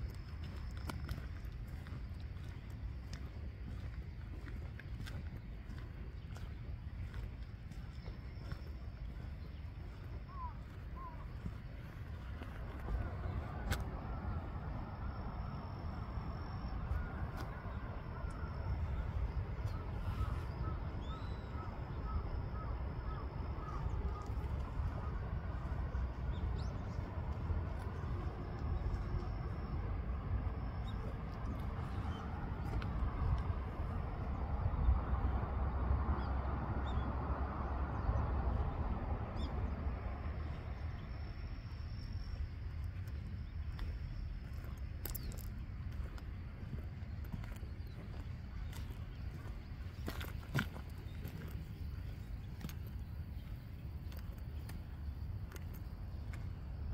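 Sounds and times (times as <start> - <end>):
steady low rumble: 0.0 - 56.9.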